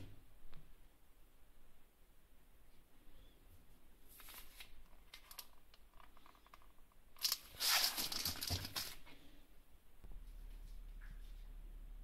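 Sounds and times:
plastic packaging crinkling: 7.2 - 9.1.

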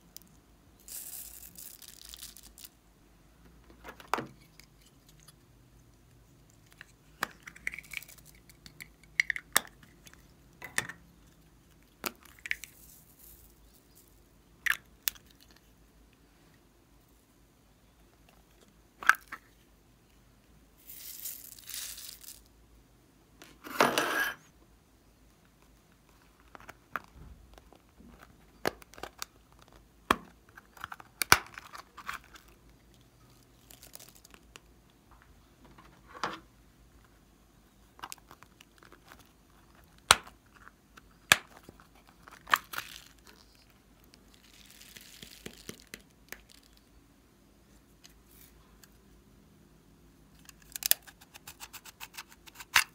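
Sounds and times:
beads rattling into a dish: 0.8 - 2.8, 12.2 - 14.2, 20.8 - 22.5.

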